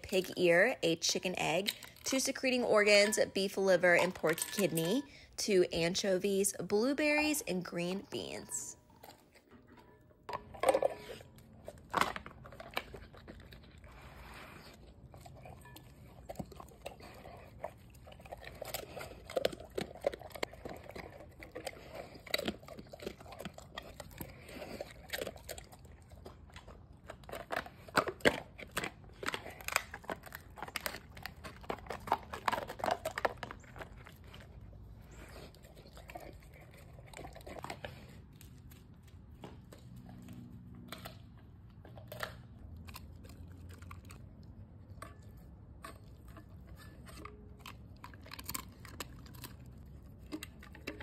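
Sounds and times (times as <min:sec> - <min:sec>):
dog chewing and crunching: 0:00.0 - 0:51.0.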